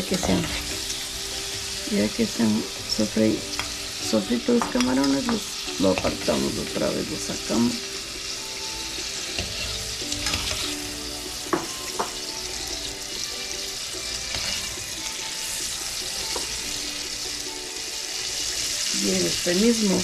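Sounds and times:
shrimp sizzling in oil: 0.0 - 20.0
metal spoon scraping a pot: 9.3 - 10.8, 14.3 - 14.8.

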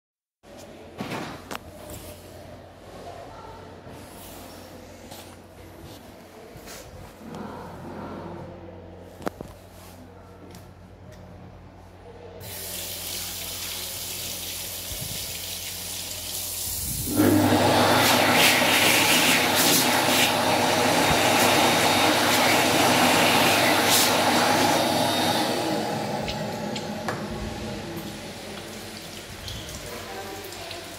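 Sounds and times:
tap water running into basin: 12.4 - 30.9
hand dryer blowing: 14.5 - 30.6.

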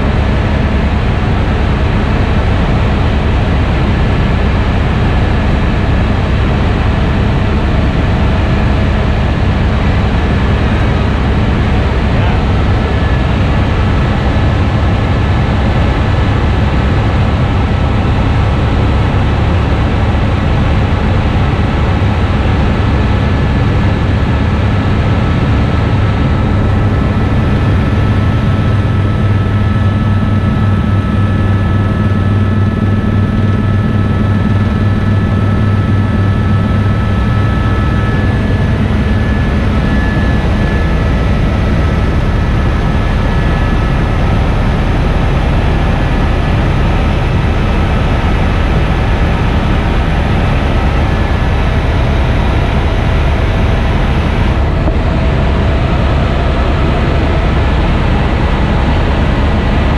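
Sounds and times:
helicopter engine and rotor drone: 0.0 - 59.9
thin high whine: 26.3 - 59.9.

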